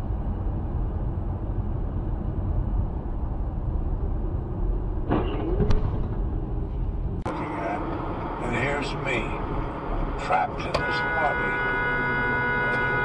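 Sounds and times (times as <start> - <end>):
road and engine rumble inside car: 0.0 - 13.0.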